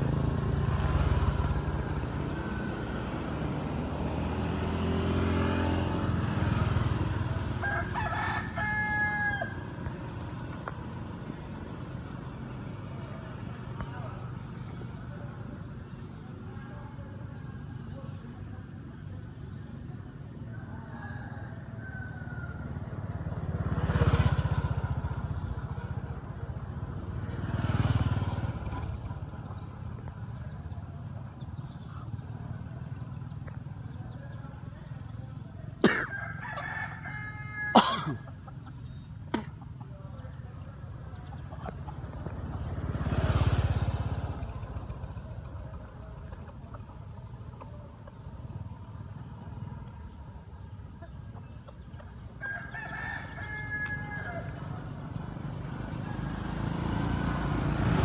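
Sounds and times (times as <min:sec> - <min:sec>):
vehicle passing: 0:00.0 - 0:20.4, 0:21.3 - 0:58.0
rooster crowing: 0:07.6 - 0:09.7, 0:35.9 - 0:38.1, 0:52.4 - 0:54.8.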